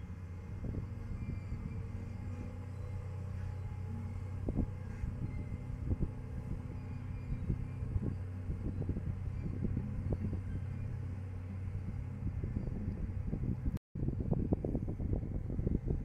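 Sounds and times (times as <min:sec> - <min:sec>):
low engine hum: 0:00.0 - 0:16.0
wind buffeting microphone: 0:00.0 - 0:16.0.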